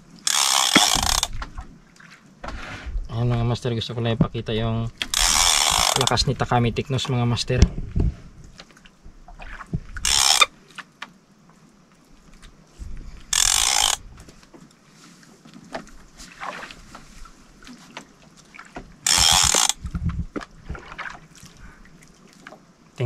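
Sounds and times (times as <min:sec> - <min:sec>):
fishing reel ratcheting: 0:00.2 - 0:01.4, 0:05.0 - 0:06.2, 0:10.0 - 0:10.5, 0:13.3 - 0:14.0, 0:19.0 - 0:19.8.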